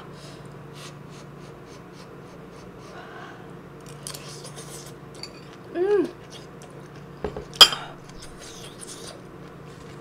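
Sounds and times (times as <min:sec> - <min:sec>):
faint steady hum: 0:00.0 - 0:10.0
mouth eating noises: 0:04.1 - 0:07.1.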